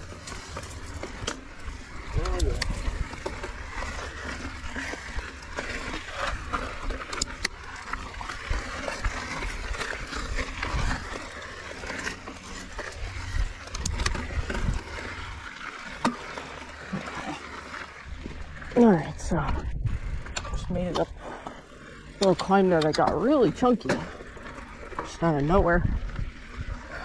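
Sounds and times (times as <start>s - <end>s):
bike rattling: 0.0s - 27.0s
bike tyres crunching on stones: 0.0s - 27.0s
rider breathing hard: 21.2s - 22.1s, 26.7s - 27.0s.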